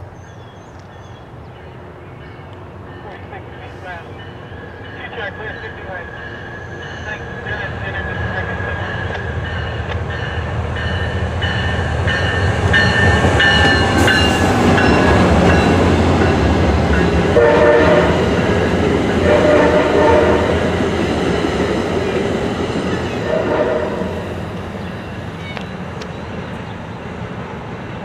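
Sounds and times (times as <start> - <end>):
diesel locomotive engine rumble: 0.8 - 28.0
train wheels clattering on rails: 8.8 - 19.8.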